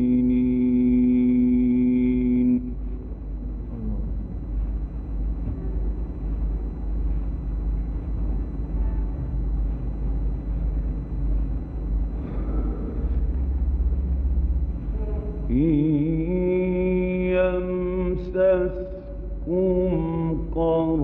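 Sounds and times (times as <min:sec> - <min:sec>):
man reciting melodically: 0:00.0 - 0:02.8, 0:15.5 - 0:21.0
recording hum and hiss: 0:00.0 - 0:21.0.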